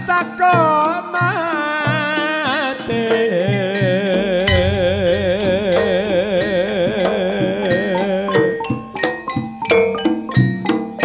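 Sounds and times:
person singing with vibrato: 0:00.9 - 0:08.6
drum and percussion strokes: 0:04.1 - 0:07.6
low bass: 0:04.2 - 0:07.4.

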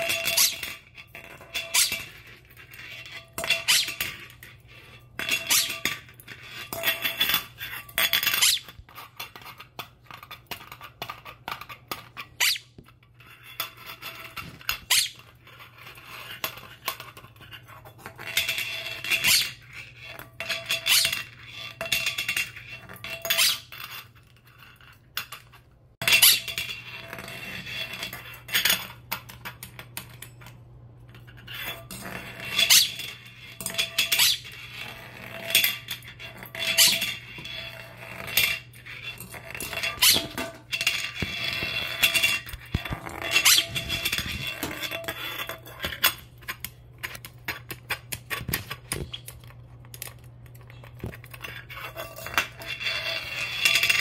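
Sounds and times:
metal lid clattering on tile floor: 0:00.0 - 0:12.6, 0:31.2 - 0:54.0.

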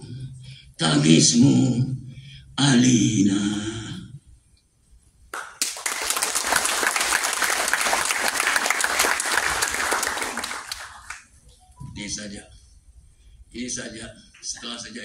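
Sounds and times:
audience applauding: 0:05.4 - 0:11.3.

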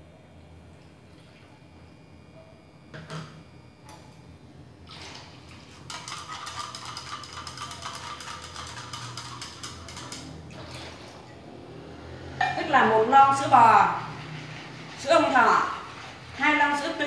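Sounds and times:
liquid noises: 0:04.8 - 0:12.5, 0:13.3 - 0:17.0
chopsticks clinking in glass jar: 0:06.4 - 0:10.3.

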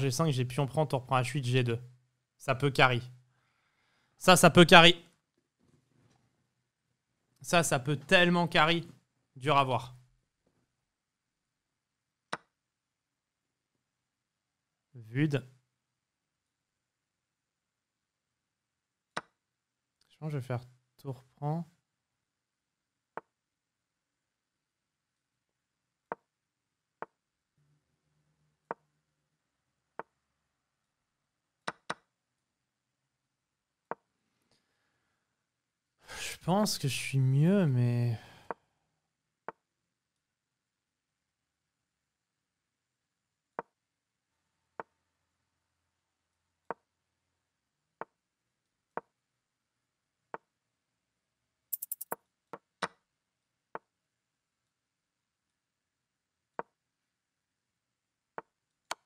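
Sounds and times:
wooden chess piece clicks: 0:12.3 - 0:12.5, 0:19.1 - 0:19.4, 0:31.6 - 0:32.1, 0:51.8 - 0:53.0
sharp bright clicks: 0:51.7 - 0:52.2.

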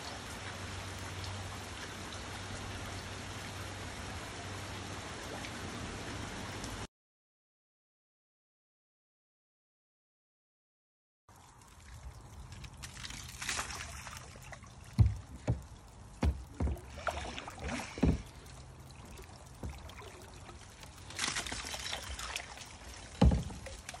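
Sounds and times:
water trickling and splashing: 0:00.0 - 0:06.9, 0:11.3 - 0:24.0
paddle splashing: 0:11.7 - 0:24.0
dull low thumps: 0:14.9 - 0:17.0.

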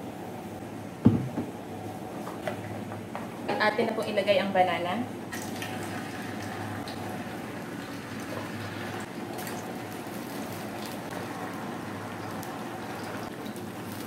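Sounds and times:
slices sizzling in hot oil: 0:05.4 - 0:14.0.

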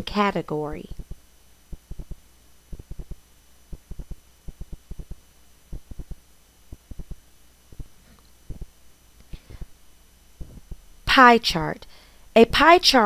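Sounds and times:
faint electrical hum: 0:00.0 - 0:13.0
soft low taps: 0:01.0 - 0:08.7, 0:10.4 - 0:10.9.

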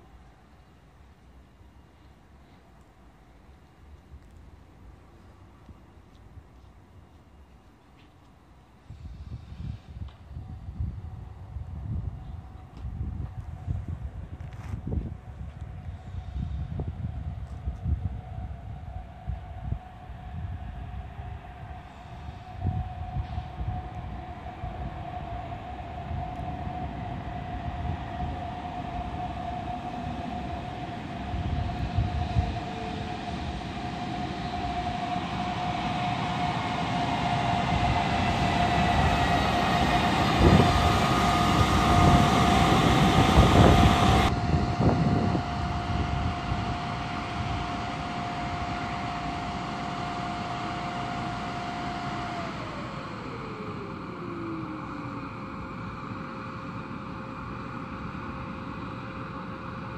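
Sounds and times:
electric locomotive arriving: 0:00.0 - 0:59.9
steady high-pitched tone: 0:18.3 - 0:59.9.

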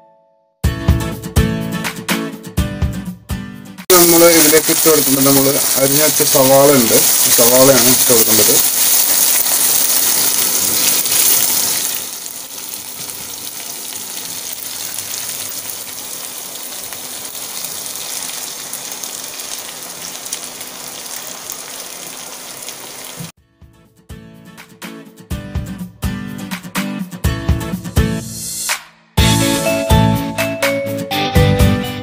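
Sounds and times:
music: 0:00.0 - 0:08.6, 0:23.4 - 0:32.0
food sizzling in hot oil: 0:03.9 - 0:23.3.

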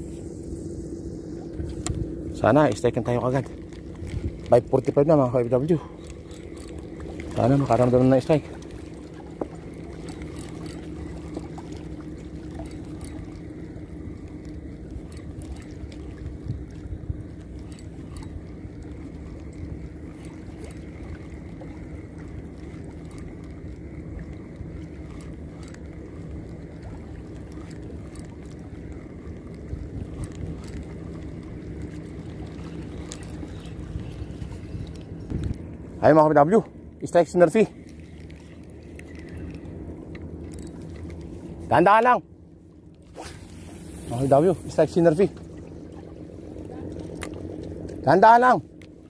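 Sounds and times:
low hum: 0:00.0 - 0:49.0
small waves lapping: 0:00.0 - 0:49.0
faint clicks: 0:37.8 - 0:41.3.

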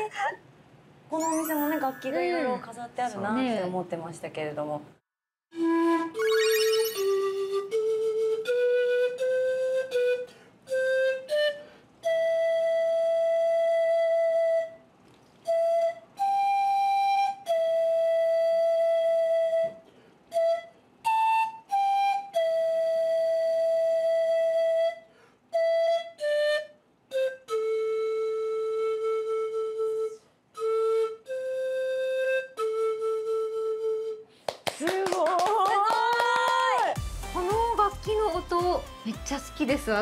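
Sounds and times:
panpipes melody: 0:05.6 - 0:14.4.

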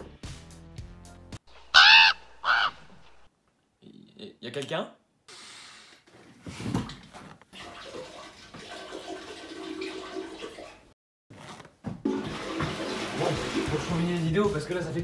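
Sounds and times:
rushing water: 0:12.1 - 0:14.6.

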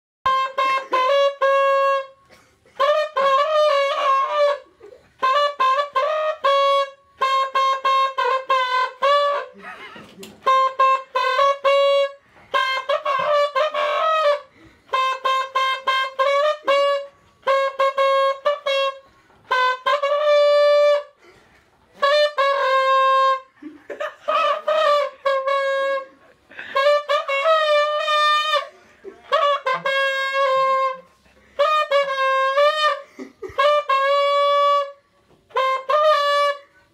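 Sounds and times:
trombone playing a melody: 0:00.3 - 0:36.9.

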